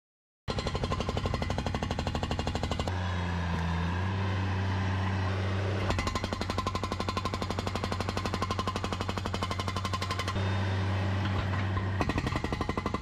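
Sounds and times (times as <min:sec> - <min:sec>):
hydraulic breaker hammering concrete: 0:00.5 - 0:02.9, 0:05.9 - 0:10.4, 0:11.4 - 0:13.0
loader engine running: 0:00.6 - 0:13.0.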